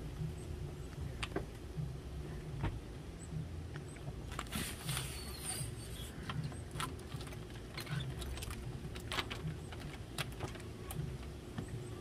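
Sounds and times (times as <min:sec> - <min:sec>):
christmas lights clicking and rustling: 0:04.3 - 0:11.4.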